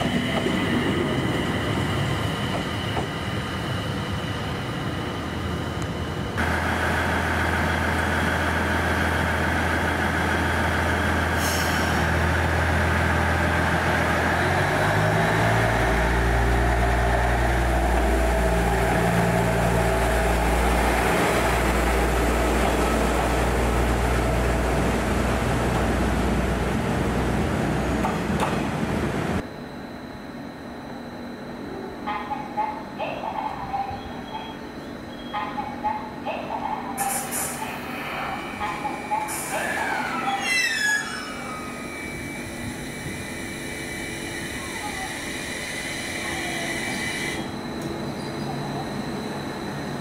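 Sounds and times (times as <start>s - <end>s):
train low drone: 0.0s - 50.0s
air hiss: 37.0s - 37.6s.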